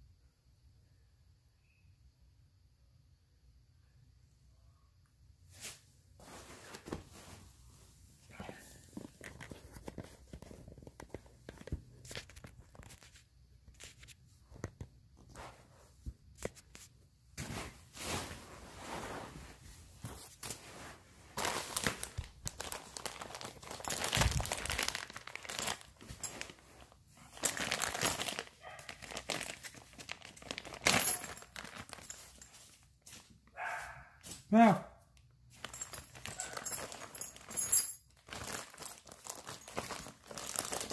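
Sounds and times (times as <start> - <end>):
plastic and paper crinkling: 8.8 - 15.7, 16.3 - 33.3, 35.6 - 40.9.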